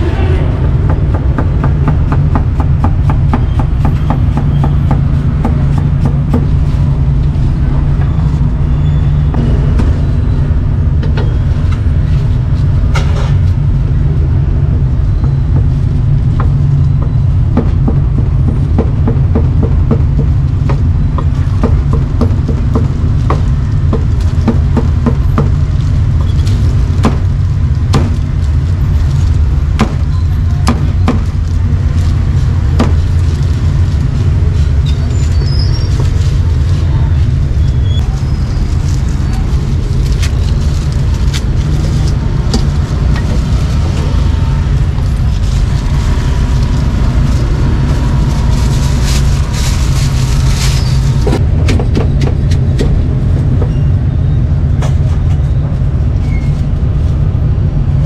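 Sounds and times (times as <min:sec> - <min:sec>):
loud low rumble: 0:00.0 - 0:03.5, 0:05.0 - 0:19.1.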